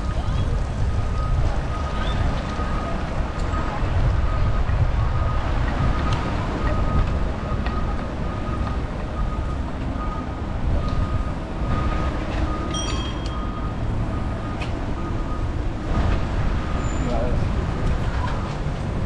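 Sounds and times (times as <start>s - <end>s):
wind on microphone: 0.0s - 8.2s
traffic rumble: 0.0s - 19.0s
faint repeating high tone: 12.7s - 14.0s
short ringing tone: 12.7s - 14.0s.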